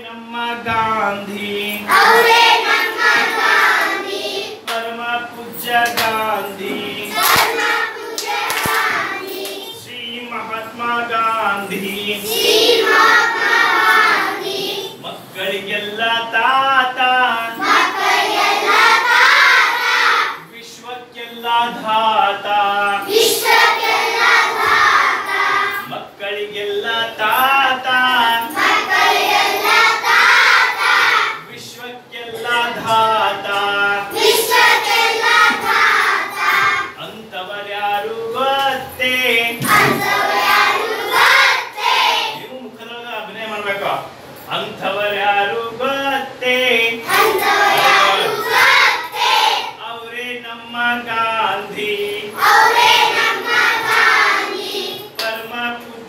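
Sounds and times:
children singing in unison: 0:01.8 - 0:04.7, 0:07.0 - 0:09.8, 0:12.2 - 0:15.0, 0:17.4 - 0:20.4, 0:23.0 - 0:25.9, 0:28.5 - 0:31.5, 0:34.0 - 0:37.0, 0:39.6 - 0:42.5, 0:47.0 - 0:49.8, 0:52.2 - 0:55.2.

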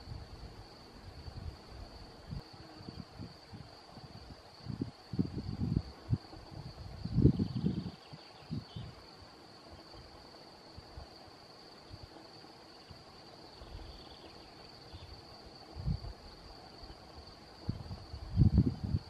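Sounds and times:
wind gusting on microphone: 0:00.0 - 0:09.0, 0:15.6 - 0:16.5, 0:17.5 - 0:19.0
high-pitched insect trill: 0:00.0 - 0:19.0.

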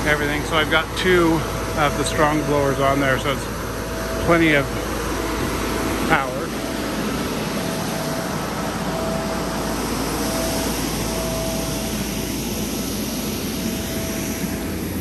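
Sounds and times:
inflatable blowers rushing and whining: 0:00.0 - 0:15.0.

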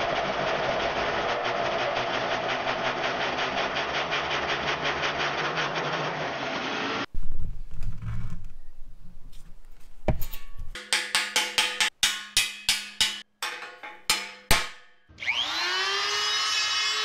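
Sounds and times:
die grinder whining: 0:00.0 - 0:07.1, 0:15.1 - 0:17.0.

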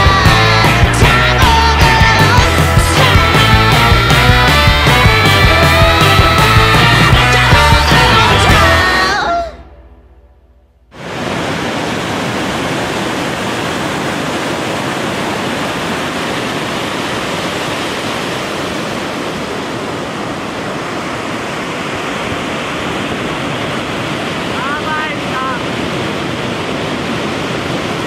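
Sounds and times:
breaking waves and whitewater: 0:00.0 - 0:09.6, 0:10.9 - 0:28.0
background music: 0:00.0 - 0:10.9.

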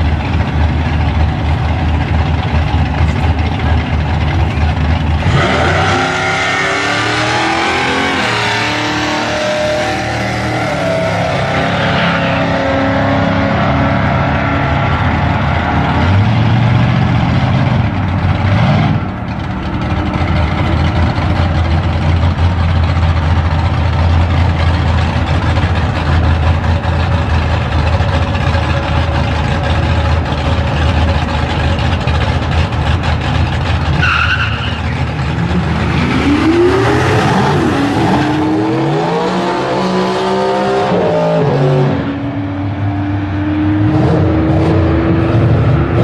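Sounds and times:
drag racing engines rumbling: 0:00.0 - 0:46.0.

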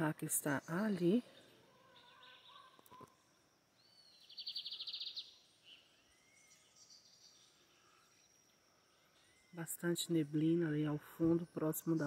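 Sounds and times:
faint bird chirps: 0:00.0 - 0:12.0.

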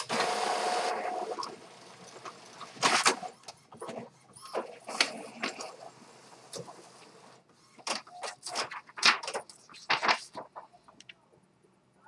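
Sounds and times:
paper rustling: 0:07.8 - 0:11.0.

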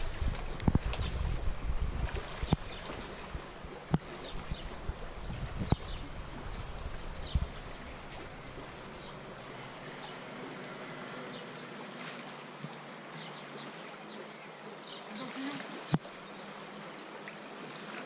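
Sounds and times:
river running over rocks: 0:00.0 - 0:18.0.

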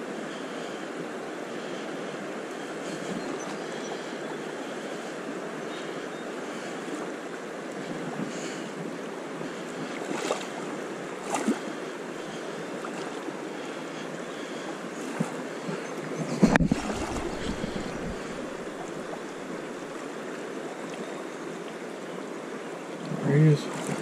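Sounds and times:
river current rushing: 0:00.0 - 0:24.0
wind buffeting microphone: 0:14.9 - 0:19.7.

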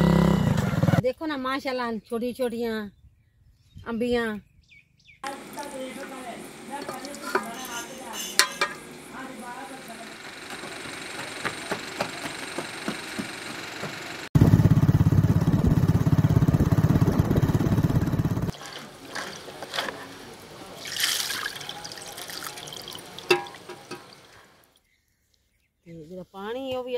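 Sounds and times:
engine running with low pulse: 0:09.9 - 0:18.5.

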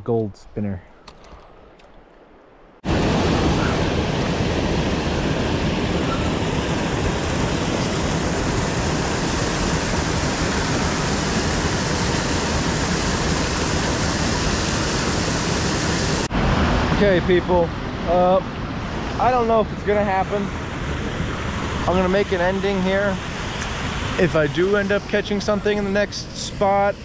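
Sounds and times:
water rushing over rocks: 0:02.9 - 0:17.6.

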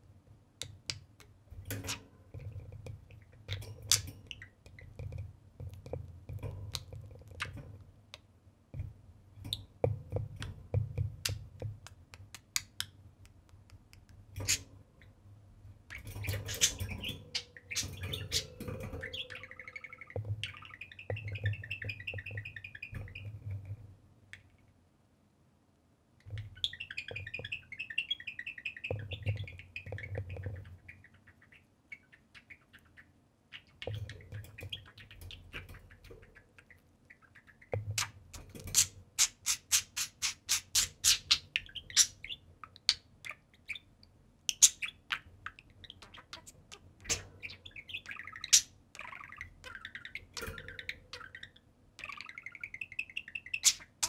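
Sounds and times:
budgies chattering and warbling: 0:14.4 - 0:14.7, 0:15.9 - 0:23.5, 0:26.3 - 0:43.9, 0:44.5 - 0:54.0.

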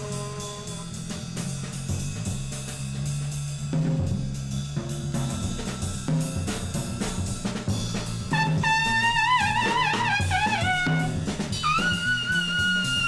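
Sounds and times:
trumpet wavering note: 0:00.0 - 0:01.0, 0:08.3 - 0:13.0
double bass: 0:00.0 - 0:13.0
drums: 0:00.0 - 0:13.0.

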